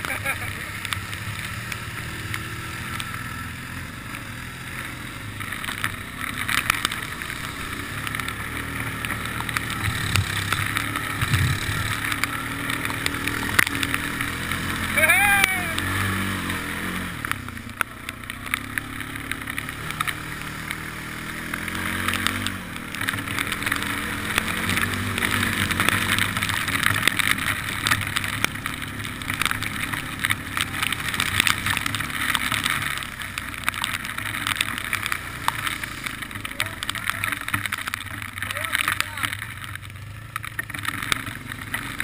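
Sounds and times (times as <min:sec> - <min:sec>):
atv engine running: 0:00.0 - 0:42.0
small sharp clicks: 0:17.2 - 0:20.8.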